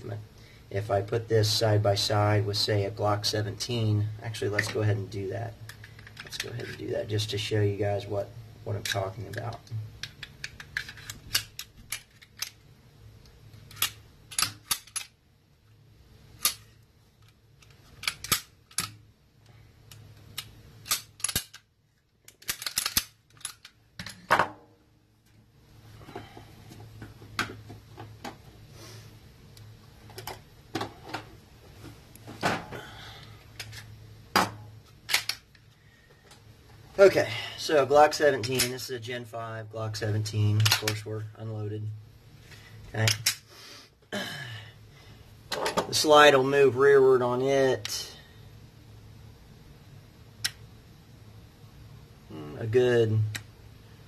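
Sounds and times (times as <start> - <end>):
pistol parts clicking: 10.0 - 12.6, 13.7 - 15.2, 16.4 - 19.0, 19.9 - 24.2, 35.1 - 35.6, 40.6 - 41.0, 43.0 - 43.4
parts set down on workbench: 24.0 - 24.7, 32.3 - 32.8, 34.3 - 34.6.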